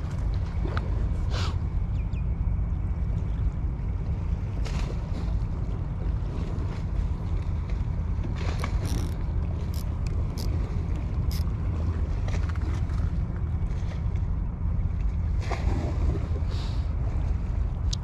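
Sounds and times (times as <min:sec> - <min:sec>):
light clicks and swishes: 0:07.7 - 0:11.5.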